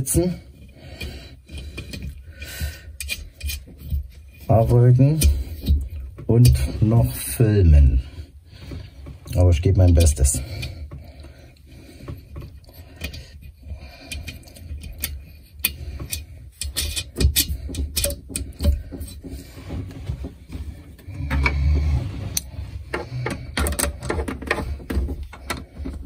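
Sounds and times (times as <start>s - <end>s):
tool clicks and rattles: 12.0s - 26.0s.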